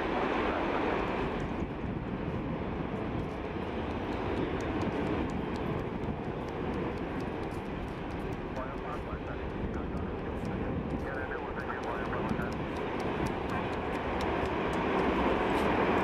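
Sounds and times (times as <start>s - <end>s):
jet engines rushing: 0.0s - 16.0s.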